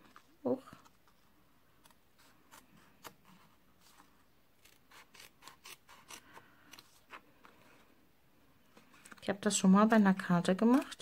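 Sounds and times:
scissors snipping paper: 4.6 - 6.8.

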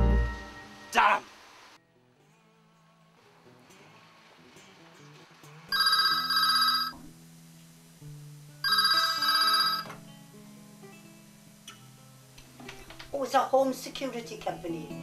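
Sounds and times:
soft background music: 1.8 - 15.0
telephone ringing: 5.7 - 7.0, 8.6 - 10.0.

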